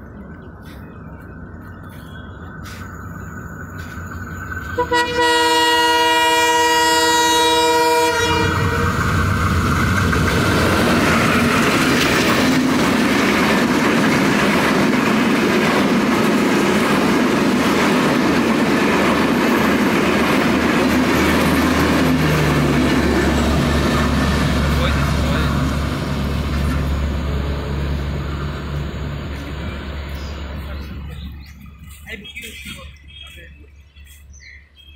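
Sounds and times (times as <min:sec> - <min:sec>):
train horn: 0:04.7 - 0:09.1
train wheels clattering on rails: 0:08.3 - 0:33.4.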